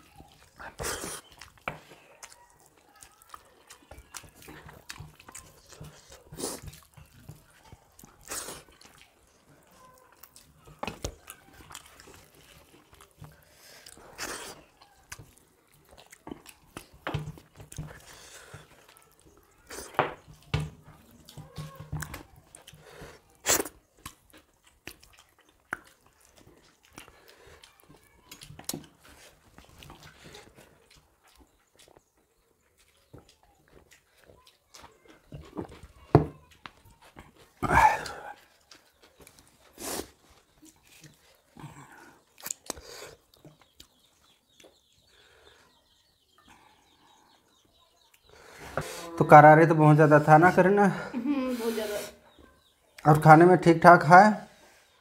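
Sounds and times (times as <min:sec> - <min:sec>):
mouth sounds of eating: 0:00.0 - 0:55.0
people chewing: 0:00.0 - 0:55.0.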